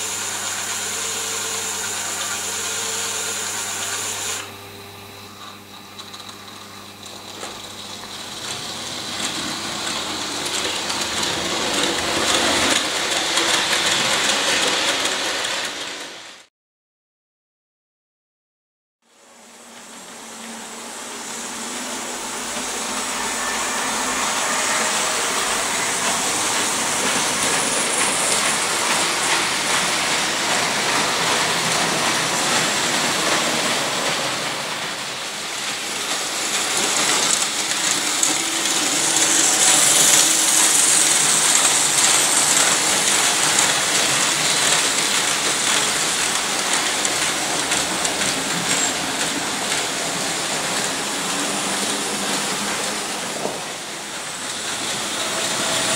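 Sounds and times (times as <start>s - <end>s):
model trains rattling on track: 7.3s - 16.4s, 20.4s - 55.9s.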